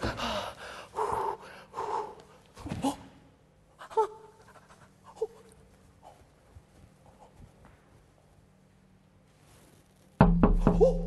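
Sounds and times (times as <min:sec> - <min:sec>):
man panting: 0:00.0 - 0:03.0.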